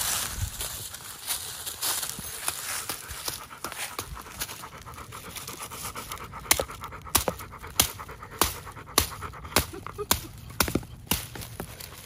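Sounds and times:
dog panting: 2.3 - 11.0.

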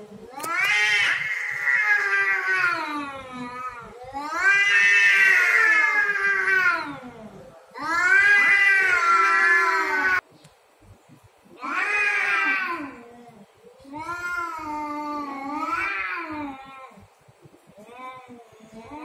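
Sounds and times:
cats yowling: 0.3 - 7.2, 7.8 - 10.2, 11.6 - 17.0.

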